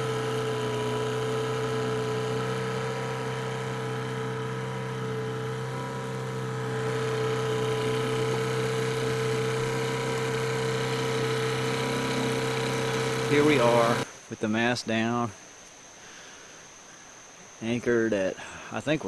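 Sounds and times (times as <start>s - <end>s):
outboard motor humming: 0.0s - 14.1s.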